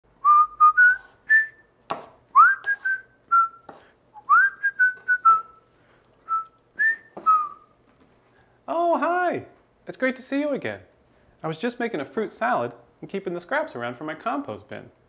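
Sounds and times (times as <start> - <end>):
man whistling a tune: 0.2 - 1.7, 2.4 - 5.7, 6.3 - 7.7
knife chopping on wooden board: 1.9 - 2.8.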